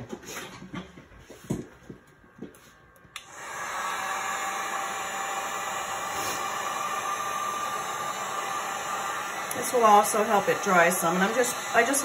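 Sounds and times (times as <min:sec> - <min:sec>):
heat gun fan blowing: 0:02.8 - 0:12.0.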